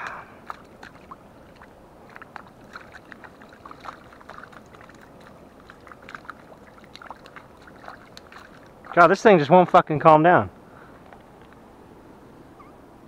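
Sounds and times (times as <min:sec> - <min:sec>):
fish splashing in shallow water: 0:00.0 - 0:09.2.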